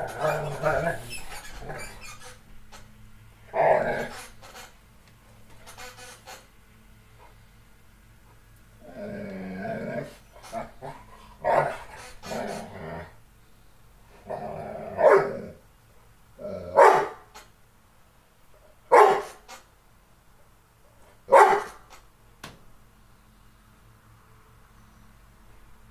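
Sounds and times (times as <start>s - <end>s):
dog growling: 0.0s - 2.3s, 3.4s - 4.3s, 8.8s - 13.2s, 14.1s - 15.7s, 16.4s - 17.2s
dog barking: 15.0s - 15.4s, 16.8s - 17.3s, 18.9s - 19.4s, 21.3s - 21.8s.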